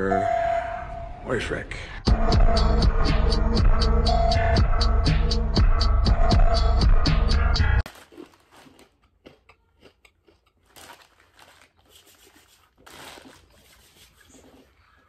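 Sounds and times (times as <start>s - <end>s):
electronic music: 2.0s - 7.8s.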